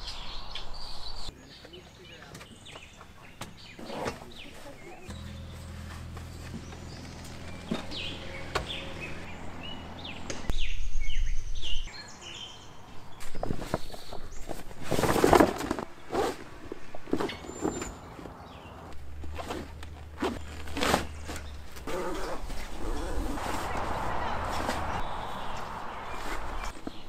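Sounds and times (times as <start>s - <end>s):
songbirds chirping: 0.0s - 27.0s
knocks and rustling of tent: 13.2s - 18.4s, 19.0s - 27.0s.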